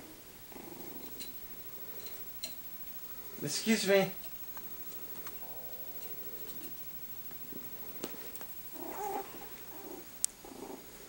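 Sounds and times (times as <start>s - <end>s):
puppies growling playfully: 0.0s - 2.3s, 4.5s - 11.0s.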